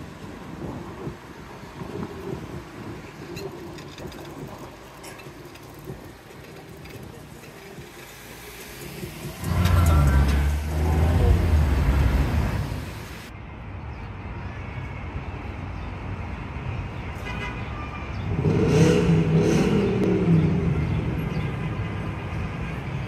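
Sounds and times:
street noise: 0.0 - 23.0
motor vehicle passing: 7.1 - 13.3
vehicle engine passing: 8.2 - 13.3.

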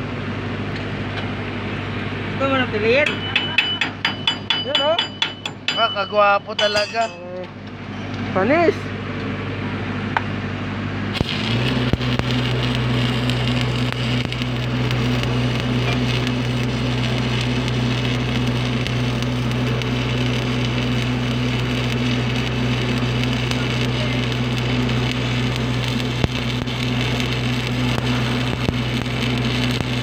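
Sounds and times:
deep steady hum: 0.0 - 30.0
welding arc crackling and sizzling: 0.8 - 8.8, 11.1 - 30.0.

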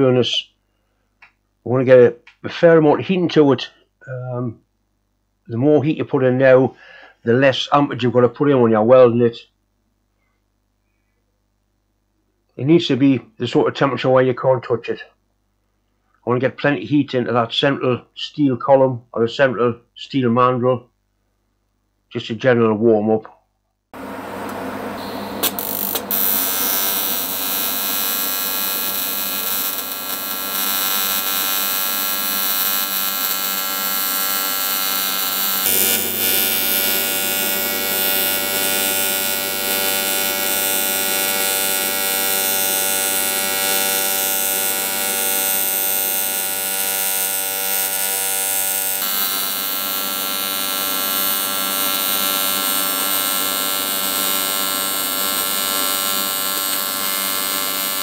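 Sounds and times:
welding arc buzzing: 24.0 - 58.0.

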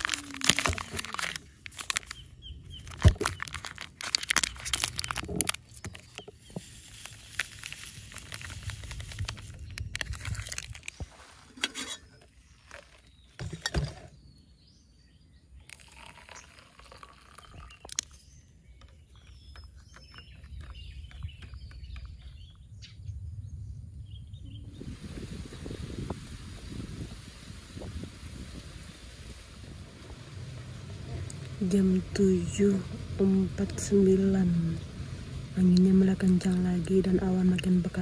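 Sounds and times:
coffee powder pouring into cup: 0.0 - 2.2, 2.9 - 11.0, 15.6 - 18.3
bird chirping: 1.9 - 3.6, 14.1 - 25.8
wind rumble on microphone: 2.1 - 11.2, 17.4 - 38.0
water pouring into cups: 3.7 - 11.4, 15.6 - 18.2.

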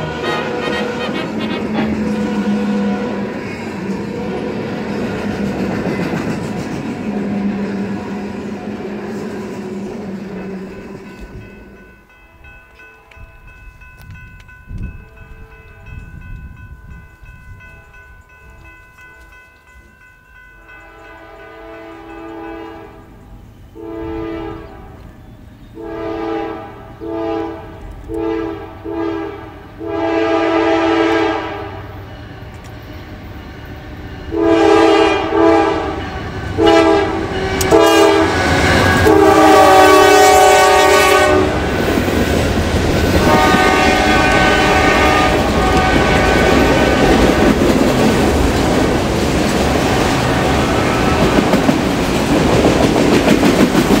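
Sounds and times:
faint steady horn note: 0.0 - 3.4, 23.8 - 25.0, 25.8 - 32.6, 33.6 - 41.6, 43.2 - 46.6
locomotive air horn blasts: 0.0 - 5.0, 20.8 - 23.0, 23.8 - 25.0, 25.8 - 41.7, 43.2 - 47.2.

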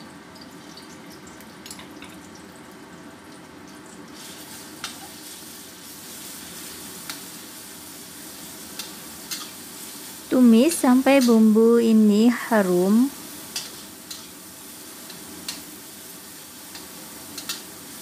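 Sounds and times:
paste sizzling in hot oil: 4.1 - 18.0.

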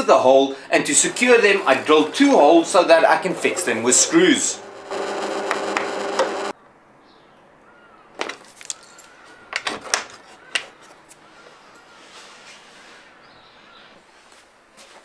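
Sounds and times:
drill press cutting metal: 0.6 - 6.5.

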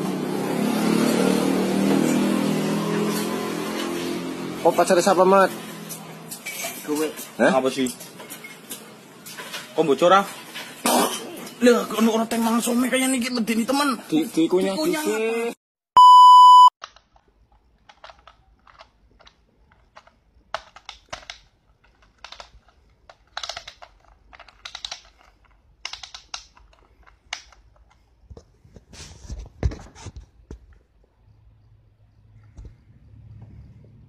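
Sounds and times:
test-tone beep: 16.0 - 16.7.

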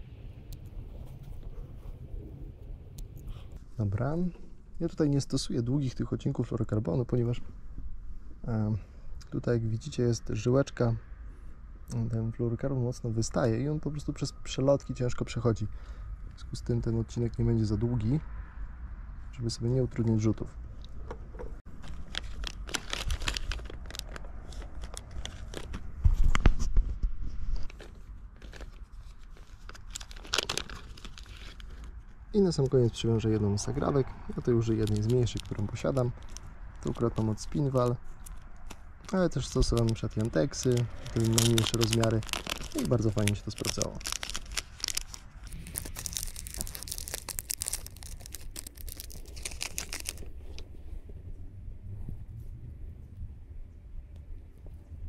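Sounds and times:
low rumble: 0.0 - 8.6, 9.6 - 55.0
fishing line rustling and crinkling: 21.6 - 32.8, 34.3 - 51.1.

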